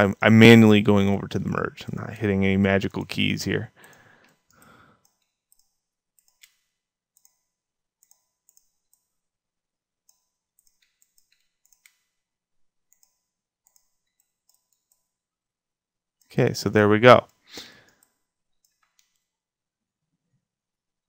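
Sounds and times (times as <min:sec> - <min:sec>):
computer mouse clicks: 0:03.8 - 0:09.1, 0:10.1 - 0:12.1, 0:12.9 - 0:15.1, 0:17.3 - 0:19.3.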